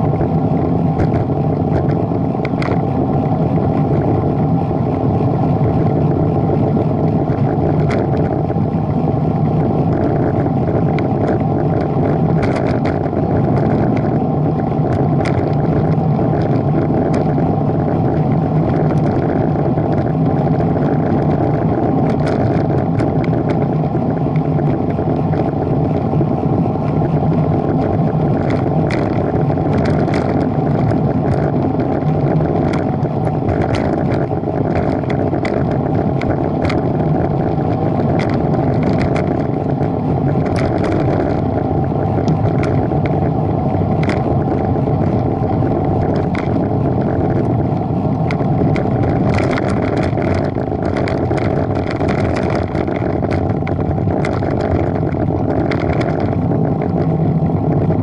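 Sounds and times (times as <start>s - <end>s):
road and wind noise: 0.0s - 58.0s
vehicle engine hum: 0.0s - 58.0s
light clicks or rattles: 1.0s - 2.9s, 9.9s - 14.2s, 14.8s - 17.4s, 18.7s - 23.9s, 26.8s - 43.3s, 44.0s - 58.0s.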